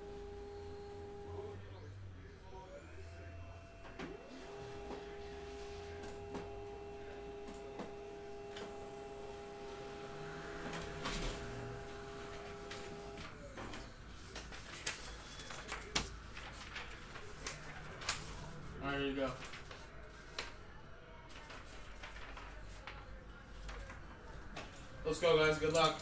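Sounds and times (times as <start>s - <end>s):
printer motor whine: 0.0s - 15.9s
paper clicks and knocks: 12.6s - 18.5s, 21.3s - 24.8s.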